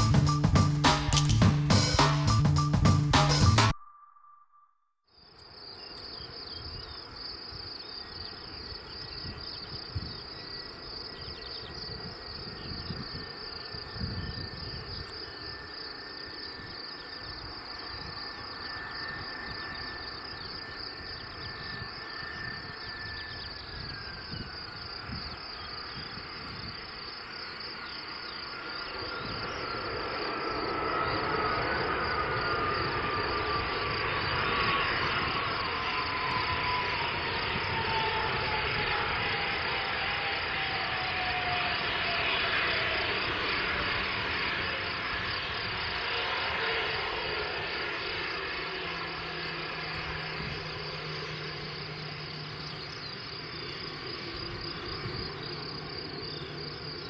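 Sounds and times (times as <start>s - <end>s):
distant jet engine whine: 0.0s - 57.0s
crickets chirping: 3.8s - 57.0s.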